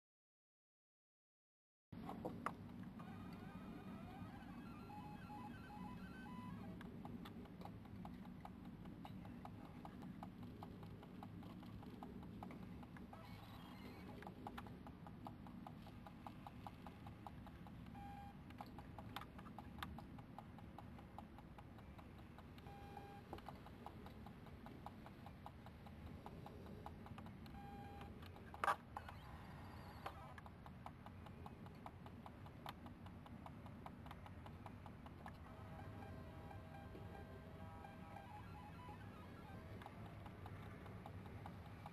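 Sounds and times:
low steady hum: 0:02.0 - 0:41.9
animal chewing food: 0:06.6 - 0:36.1.

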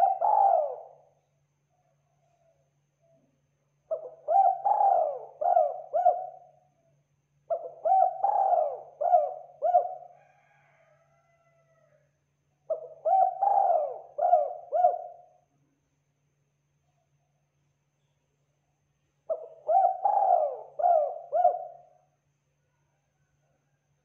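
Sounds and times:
dove cooing: 0:00.0 - 0:01.1, 0:03.9 - 0:06.6, 0:07.5 - 0:10.6, 0:12.7 - 0:15.3, 0:19.3 - 0:21.9.

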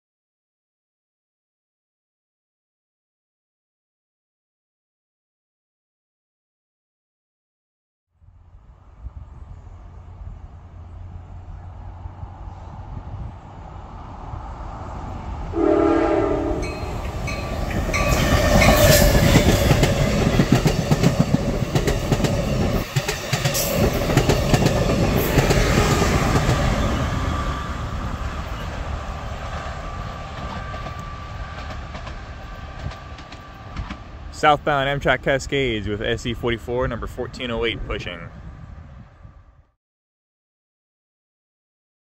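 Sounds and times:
train passing at speed: 0:08.2 - 0:39.7
train horn blast: 0:15.5 - 0:17.5.

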